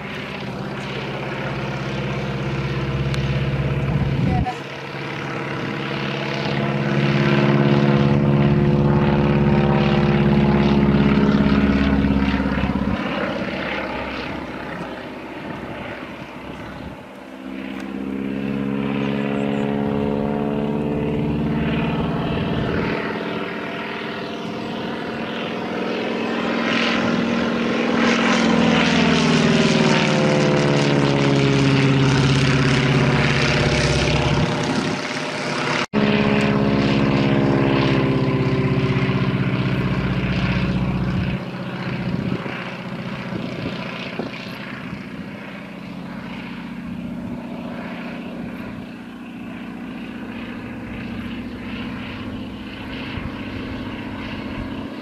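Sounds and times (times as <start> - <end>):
biplane engine droning overhead: 0.0 - 55.0.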